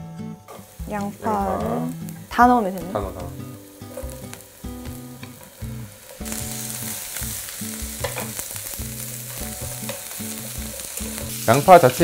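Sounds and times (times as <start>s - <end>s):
onions sizzling in oil: 0.5s - 12.0s
chopsticks scraping a pan: 8.0s - 12.0s.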